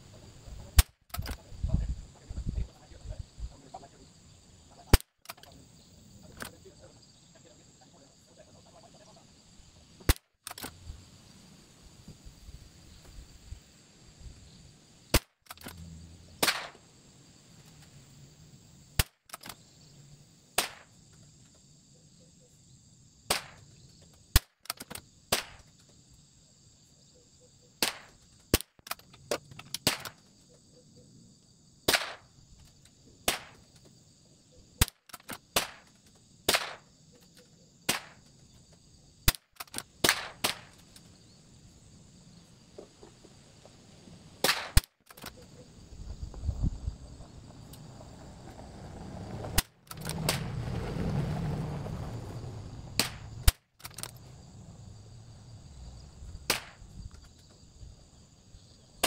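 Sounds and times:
insect chorus: 0.0s - 59.0s
rifle shots: 16.4s - 16.8s, 31.9s - 32.3s.

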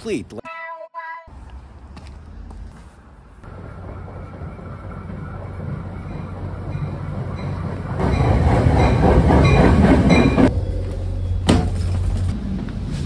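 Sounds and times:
train wheels rumbling on rails: 3.4s - 13.0s.

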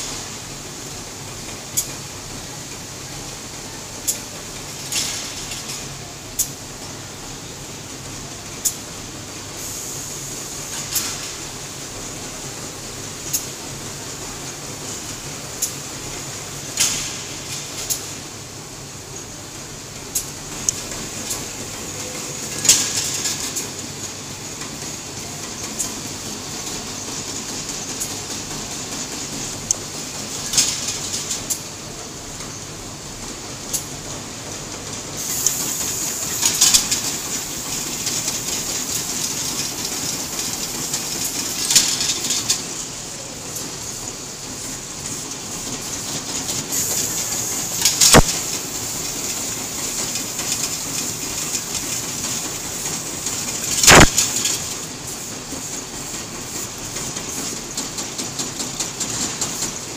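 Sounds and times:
machine belts and rollers humming: 0.0s - 59.9s
machine clattering: 20.0s - 59.9s
short hiss: 35.2s - 39.8s, 46.7s - 51.2s, 53.4s - 55.2s
sharp machine clacks: 35.2s - 42.7s, 45.1s - 59.9s
sharp machine click: 35.3s - 42.6s, 46.8s - 48.7s, 53.4s - 54.9s.

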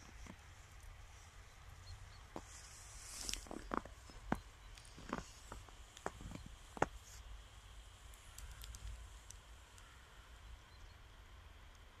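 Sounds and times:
footsteps crunching in snow: 2.3s - 7.1s
faint ticks: 8.1s - 10.9s, 11.6s - 12.0s.

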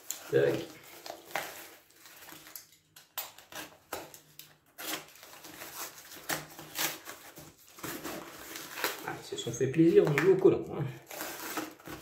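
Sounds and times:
box cutter slicing packing tape: 4.8s - 7.3s, 11.1s - 12.0s
cardboard box rustling: 4.8s - 9.3s.

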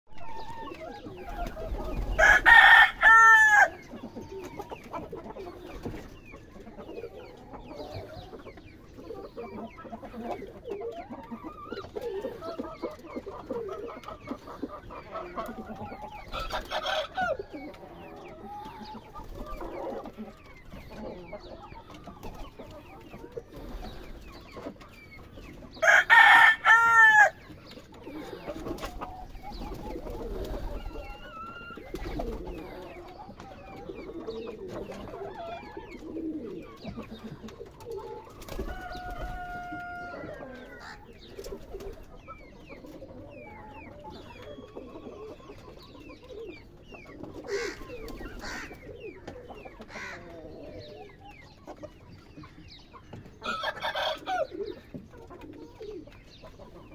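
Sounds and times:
chickens clucking: 0.1s - 56.9s
rooster crowing: 2.2s - 3.7s, 25.8s - 27.4s, 38.6s - 41.0s.

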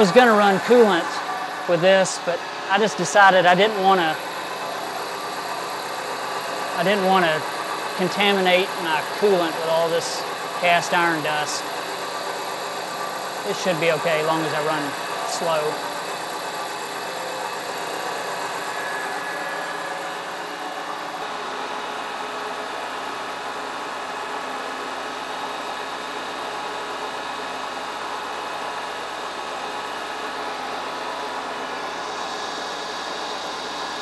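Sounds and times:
cutter cutting metal: 0.0s - 21.2s
milling machine hum and whine: 0.0s - 34.0s.

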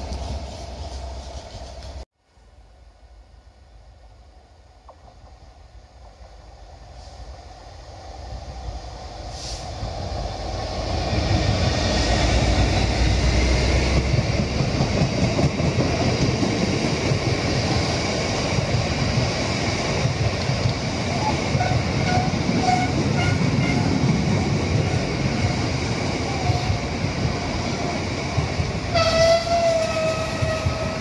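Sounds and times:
train wagons rolling on rails: 8.4s - 31.0s.

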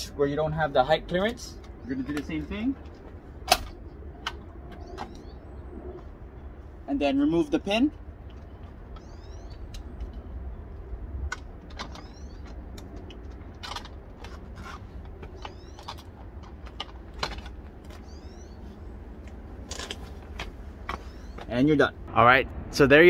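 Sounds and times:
low outdoor rumble: 0.0s - 23.0s
small bird chirping: 4.7s - 6.0s, 8.4s - 10.6s, 11.9s - 12.6s, 15.2s - 16.2s, 17.9s - 18.8s, 20.9s - 21.5s
clicks and knocks of metal parts: 11.2s - 18.1s, 19.2s - 21.5s.

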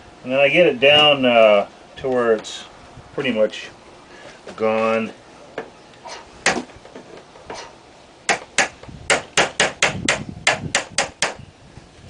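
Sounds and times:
hammer striking chisel: 8.3s - 11.4s.

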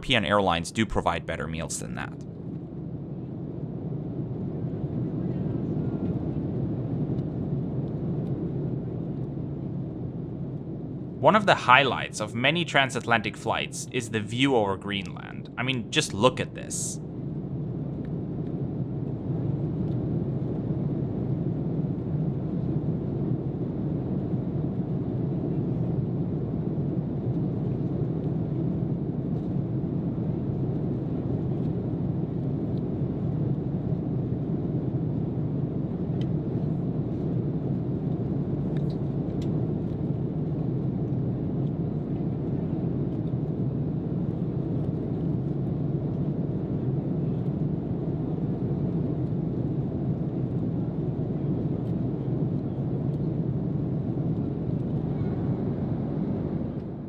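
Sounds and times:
airliner cabin noise: 0.0s - 3.4s, 11.0s - 17.0s.

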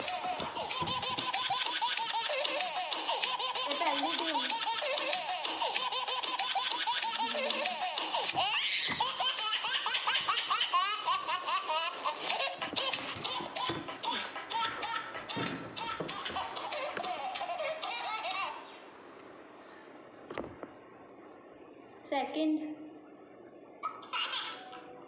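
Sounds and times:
high-pitched baby-like laughter: 0.0s - 18.8s, 23.8s - 24.9s.

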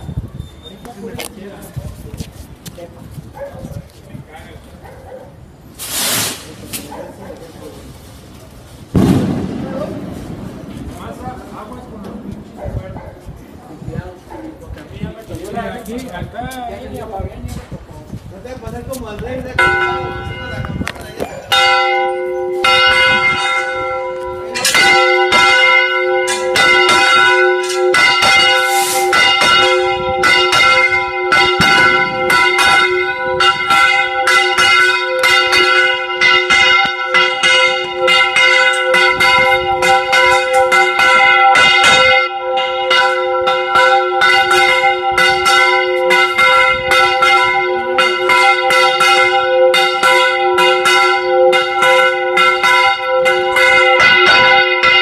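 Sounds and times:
church bells ringing rapidly: 8.9s - 13.3s, 19.4s - 55.0s.

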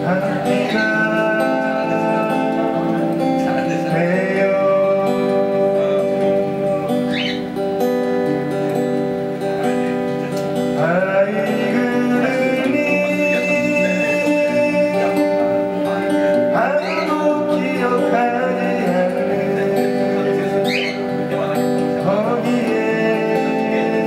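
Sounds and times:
man singing: 0.0s - 7.5s, 10.7s - 24.0s
acoustic guitar chords: 0.0s - 24.0s.

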